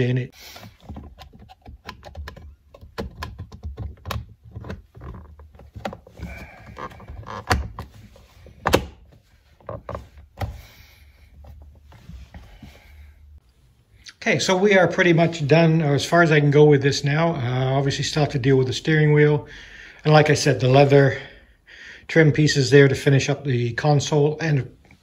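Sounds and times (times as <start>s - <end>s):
plastic trim clicks and knocks: 0.9s - 6.0s, 8.5s - 9.0s.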